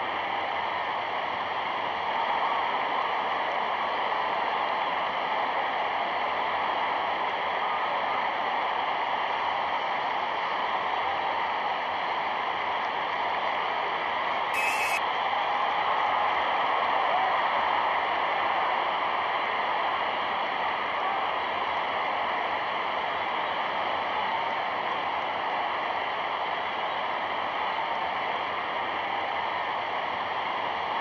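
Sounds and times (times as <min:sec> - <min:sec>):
film soundtrack hiss: 0:00.0 - 0:31.0
high crackle: 0:14.6 - 0:15.0.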